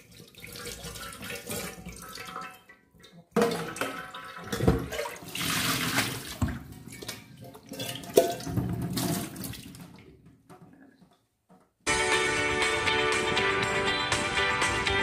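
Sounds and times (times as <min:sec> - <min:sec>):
water poured into a sink: 0:00.0 - 0:10.2.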